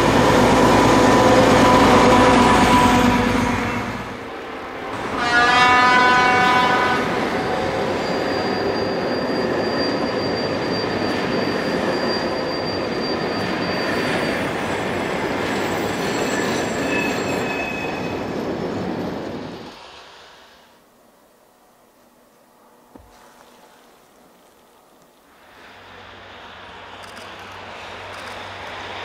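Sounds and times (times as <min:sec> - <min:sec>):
high wheel squeal: 0:00.0 - 0:04.3, 0:05.0 - 0:19.8
locomotive horn: 0:00.0 - 0:08.2
train rumbling: 0:00.0 - 0:22.9, 0:23.6 - 0:29.0.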